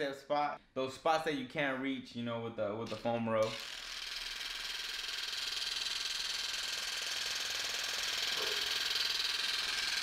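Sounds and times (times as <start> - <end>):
massage gun buzzing: 2.9 - 10.0.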